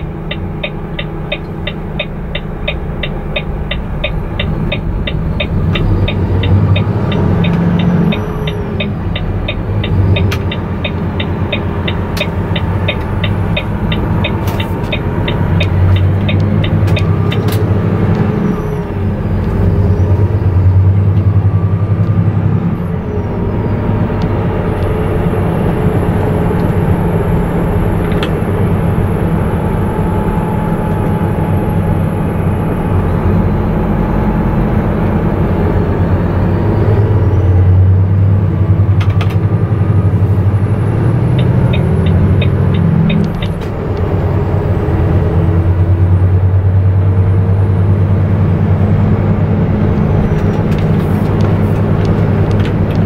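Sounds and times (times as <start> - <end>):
turn signal ticking: 0.0 - 18.6, 38.6 - 44.2, 49.8 - 53.0
truck diesel engine running: 0.0 - 53.0.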